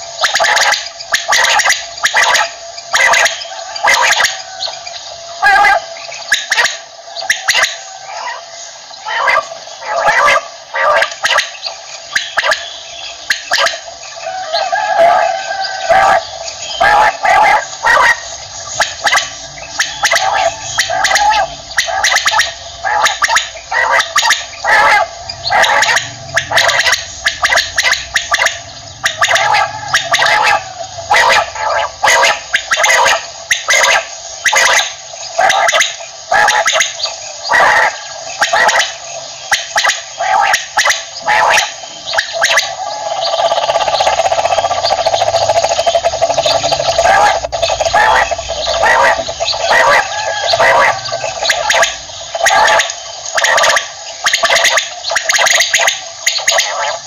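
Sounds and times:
quail calling: 0.0s - 57.0s.

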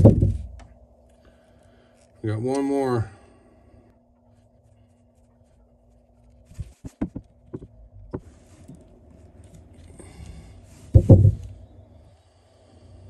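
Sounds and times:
rustling: 4.2s - 11.7s.

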